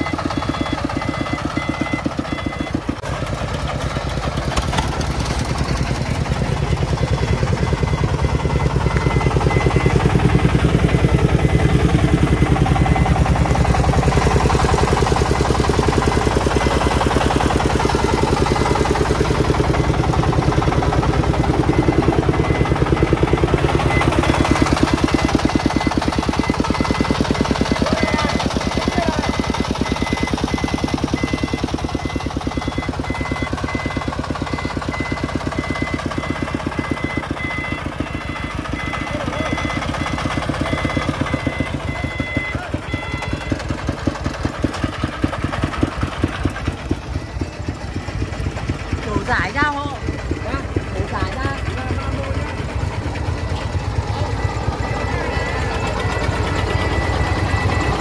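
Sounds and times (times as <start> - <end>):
diesel engine running under load: 0.0 - 58.0.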